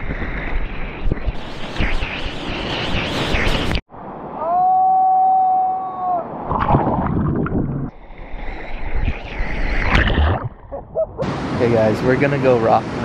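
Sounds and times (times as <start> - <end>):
person cheering whoo: 4.4 - 6.3
water rushing and splashing: 9.6 - 13.0.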